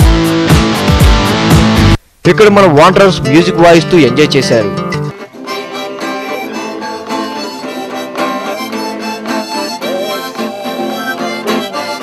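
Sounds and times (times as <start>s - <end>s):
acoustic guitar strumming: 0.0s - 12.0s
man singing: 9.6s - 12.0s.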